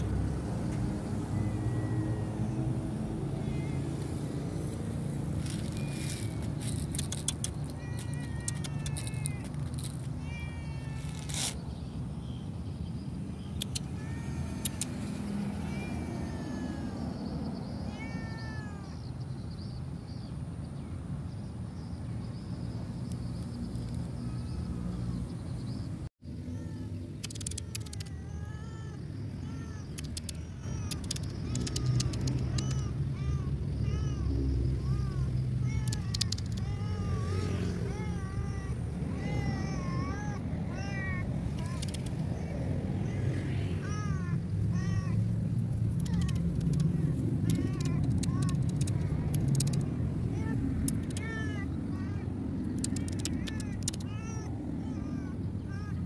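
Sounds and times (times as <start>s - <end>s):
cat meowing: 1.2s - 4.2s, 7.2s - 11.6s, 13.6s - 19.1s, 26.6s - 45.2s, 46.0s - 56.0s
sharp clicks: 5.7s - 10.0s, 13.5s - 14.0s, 14.6s - 15.1s, 27.1s - 28.2s, 29.8s - 33.0s, 35.8s - 36.7s, 41.6s - 42.2s, 45.9s - 49.9s, 50.8s - 51.4s, 52.6s - 54.1s.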